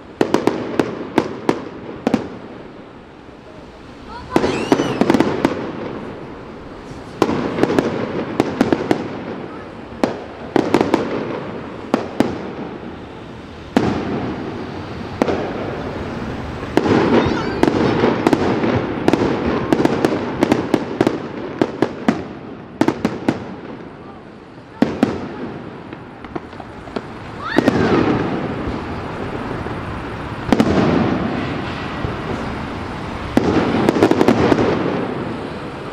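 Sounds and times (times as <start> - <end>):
firework shells bursting: 0.2 - 23.6.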